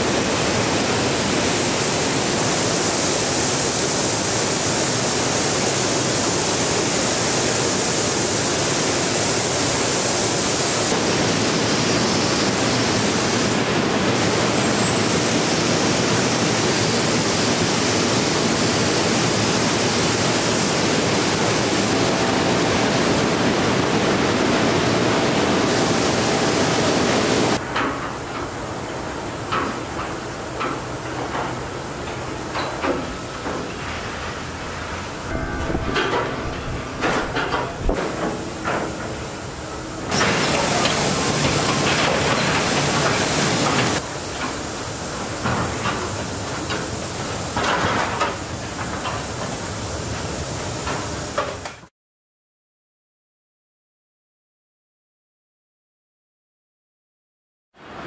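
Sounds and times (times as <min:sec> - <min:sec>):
loud air hiss: 0:00.0 - 0:27.6, 0:39.2 - 0:47.5.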